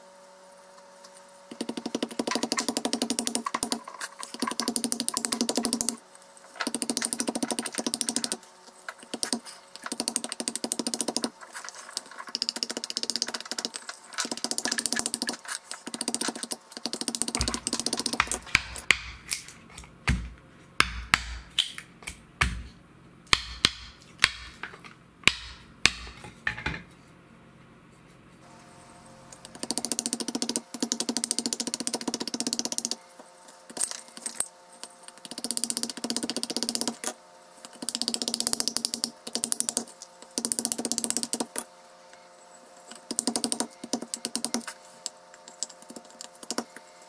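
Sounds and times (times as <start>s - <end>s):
knife chopping wood on stump: 17.3s - 22.7s, 23.3s - 24.6s.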